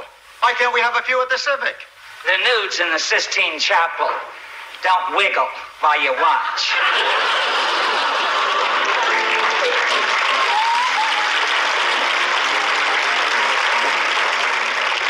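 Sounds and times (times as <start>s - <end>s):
audience laughing: 6.6s - 14.7s
audience applauding: 6.8s - 15.0s.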